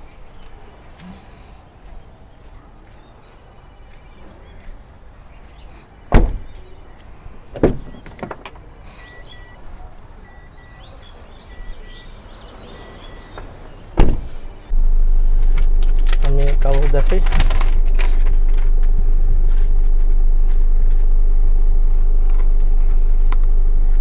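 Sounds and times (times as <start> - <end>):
car doors slamming: 6.1 - 6.5, 7.6 - 8.4, 14.0 - 14.4.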